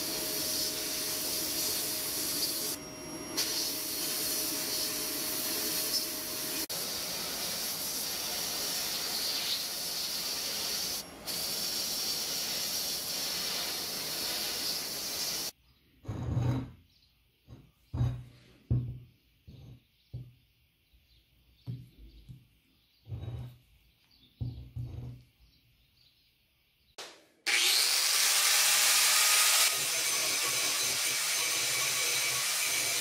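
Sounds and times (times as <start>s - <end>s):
sandblasting gun hissing: 0.0s - 2.8s, 3.4s - 15.6s.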